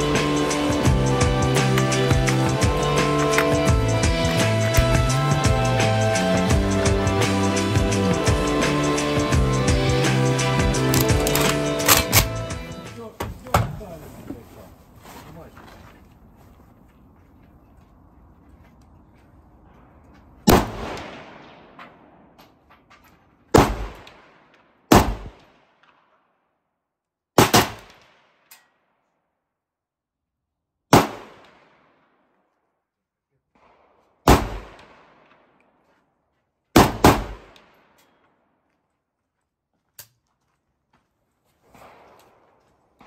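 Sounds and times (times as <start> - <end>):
rifle shots: 10.8 - 12.4, 20.4 - 22.4, 23.5 - 26.1, 27.4 - 28.6, 30.9 - 32.1, 33.6 - 35.6, 36.8 - 38.0.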